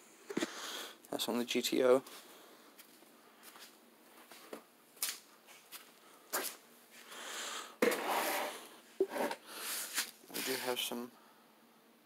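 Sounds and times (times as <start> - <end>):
footsteps on concrete floor: 2.8 - 7.1.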